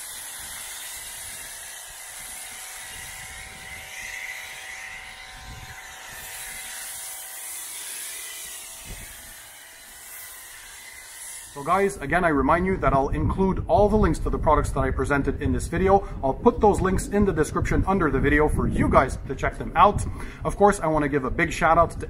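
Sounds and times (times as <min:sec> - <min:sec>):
foam cannon spray hiss: 0:00.0 - 0:11.9
pressure washer motor humming: 0:00.0 - 0:11.9.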